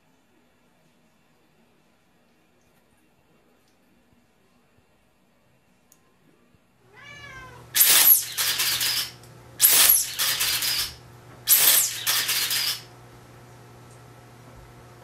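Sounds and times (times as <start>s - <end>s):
cat meowing: 6.9s - 7.8s
loud hissing noise bursts: 7.7s - 12.9s.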